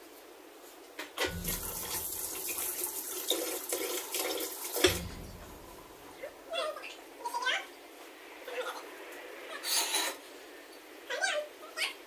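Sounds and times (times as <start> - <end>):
water running from a tap: 1.2 - 6.2.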